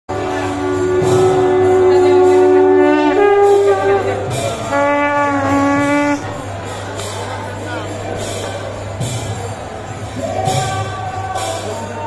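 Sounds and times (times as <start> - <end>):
conch shells blown: 0.1 - 6.6.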